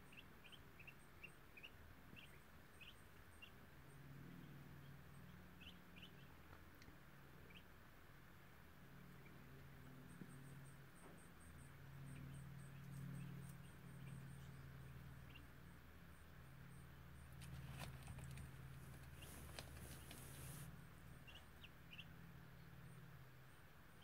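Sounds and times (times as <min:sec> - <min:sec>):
ducklings peeping: 0:00.0 - 0:03.7, 0:04.3 - 0:06.7, 0:07.4 - 0:07.8, 0:11.7 - 0:24.0
low hum: 0:00.0 - 0:24.0.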